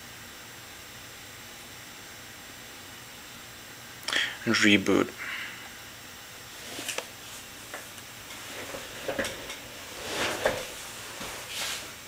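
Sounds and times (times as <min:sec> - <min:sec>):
steady background hiss: 0:00.0 - 0:12.0
soft rustles: 0:08.4 - 0:12.0.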